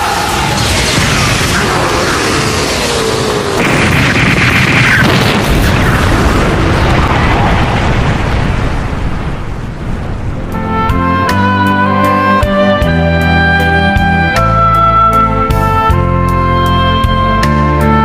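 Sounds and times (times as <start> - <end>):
big explosion blast: 0.0 - 10.4
explosion booms rumbling: 0.3 - 10.5.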